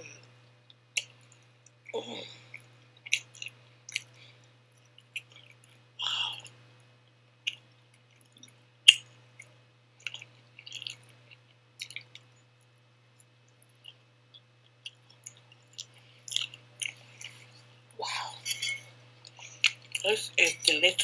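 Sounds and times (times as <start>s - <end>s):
chewing and wet mouth smacks: 0.7s - 5.8s, 7.4s - 12.4s, 13.2s - 17.7s, 19.2s - 20.0s.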